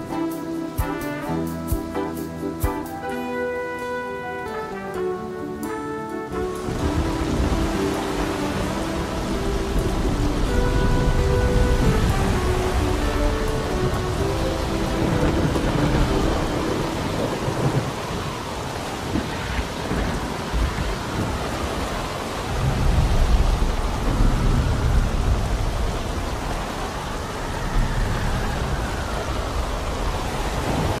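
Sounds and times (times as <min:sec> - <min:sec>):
heavy rain: 0:00.0 - 0:31.0
rolling thunder: 0:06.4 - 0:31.0.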